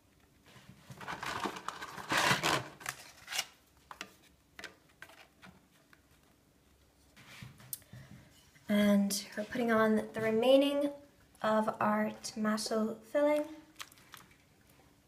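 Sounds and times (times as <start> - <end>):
pasta sheets rustling and scraping: 0.4 - 6.2.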